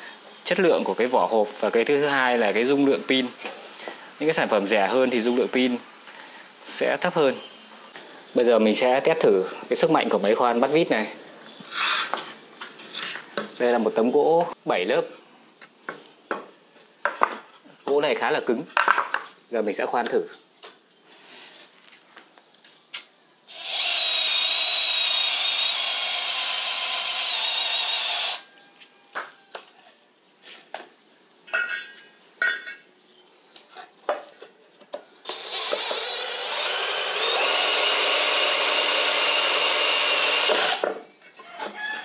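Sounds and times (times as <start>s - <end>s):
cordless drill boring into plywood: 23.5s - 28.5s, 35.2s - 41.0s.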